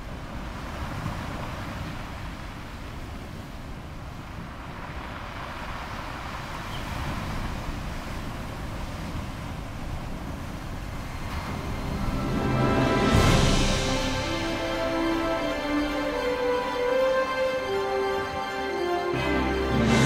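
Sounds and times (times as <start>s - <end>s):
wind buffeting microphone: 0.0s - 14.5s
rough sea breaking on ship hull: 0.0s - 19.1s.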